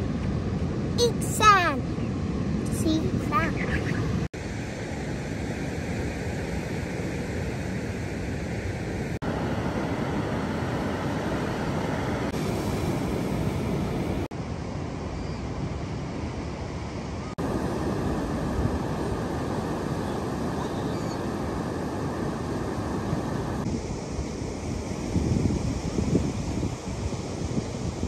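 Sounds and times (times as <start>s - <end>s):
surf rushing: 2.7s - 14.3s
wind on microphone: 17.4s - 28.0s.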